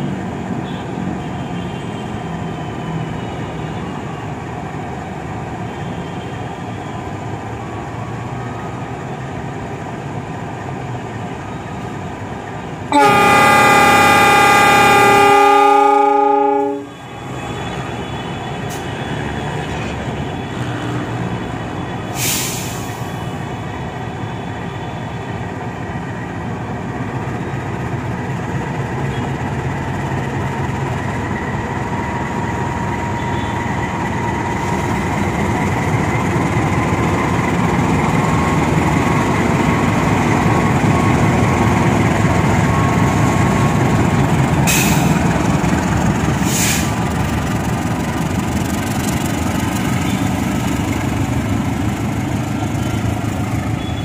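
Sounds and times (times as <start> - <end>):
diesel locomotive engine running: 0.0 - 54.0
locomotive horn: 12.9 - 19.3, 53.8 - 54.0
short hiss: 22.1 - 23.1, 46.4 - 47.0.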